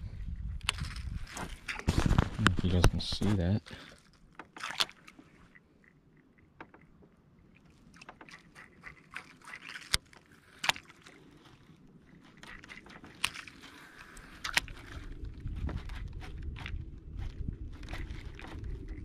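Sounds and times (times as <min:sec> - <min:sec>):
low rumble: 0:00.0 - 0:03.7
rod and reel clicks and knocks: 0:00.6 - 0:03.0, 0:03.9 - 0:19.0.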